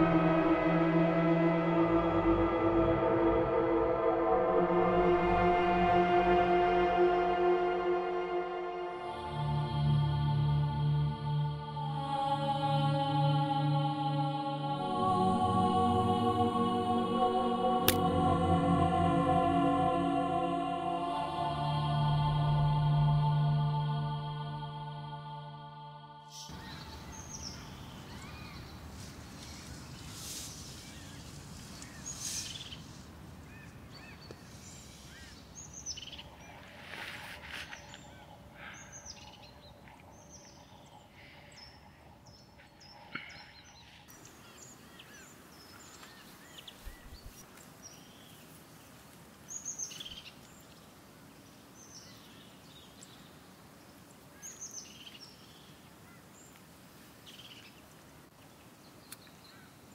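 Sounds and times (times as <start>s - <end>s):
birds chirping: 26.3s - 48.5s
steady background hiss: 26.4s - 42.6s, 43.7s - 59.9s
soft rustling: 28.0s - 35.5s, 36.3s - 38.4s.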